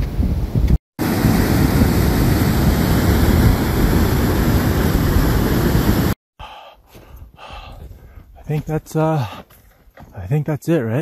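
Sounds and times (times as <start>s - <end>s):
water rushing: 1.0s - 6.2s.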